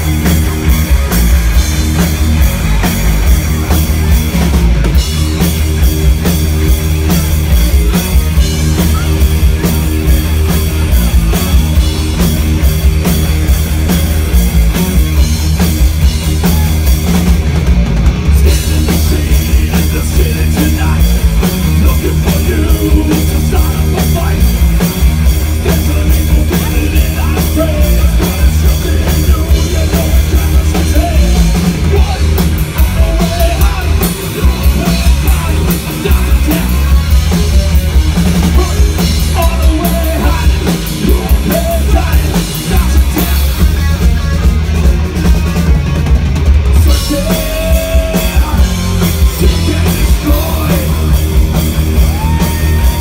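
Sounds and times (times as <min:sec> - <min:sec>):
heavy metal band playing: 0:00.0 - 0:53.0
lead singer singing: 0:18.4 - 0:24.6, 0:25.4 - 0:44.6, 0:46.7 - 0:53.0.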